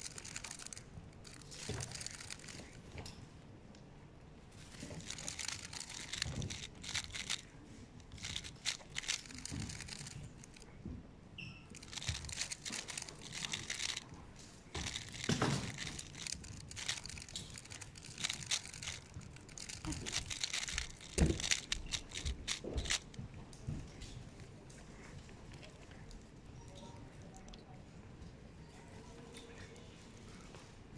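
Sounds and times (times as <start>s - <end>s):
speed cube clicking and rattling: 0.0s - 2.9s, 4.6s - 10.7s, 11.8s - 23.2s.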